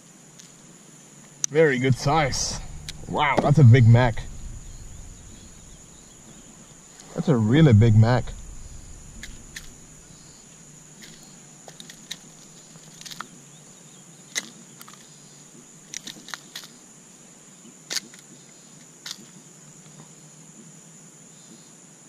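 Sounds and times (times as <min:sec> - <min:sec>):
faint high whine: 0:01.5 - 0:10.8.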